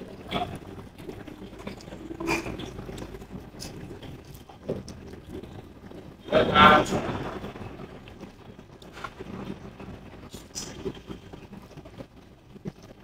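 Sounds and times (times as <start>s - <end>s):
eating clicks and rustling: 0.0s - 6.1s.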